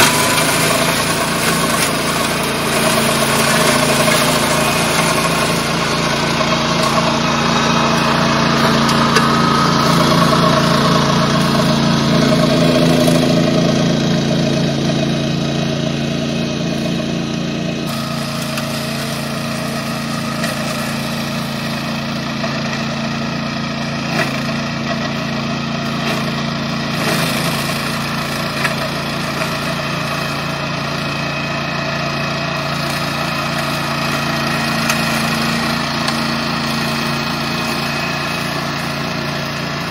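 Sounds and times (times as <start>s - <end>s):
small petrol engine mowing weeds: 0.0s - 39.9s.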